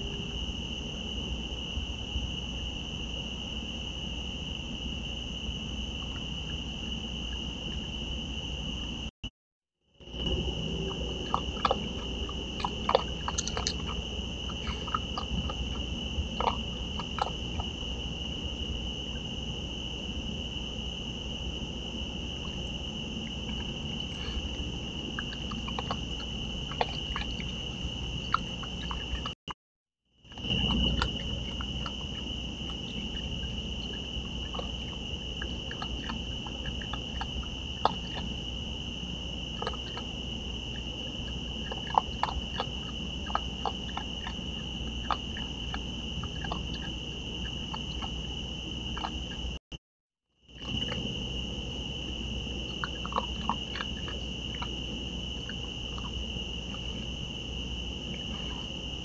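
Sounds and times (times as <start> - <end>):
crickets chirring: 0.0 - 9.1, 9.9 - 29.4, 30.2 - 49.6, 50.4 - 59.0
animals crunching dry food: 10.2 - 17.8, 23.5 - 29.4, 41.6 - 46.9, 52.7 - 54.9.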